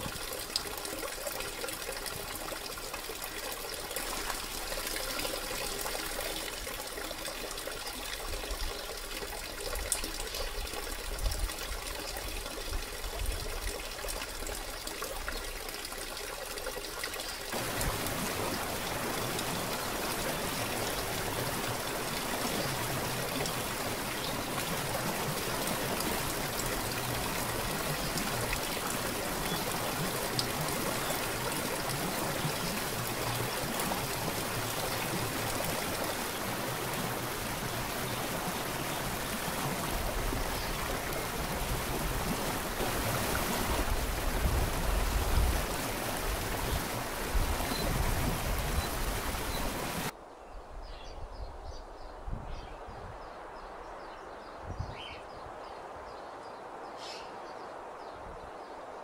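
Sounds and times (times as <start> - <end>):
waterfall rushing: 17.5 - 50.1.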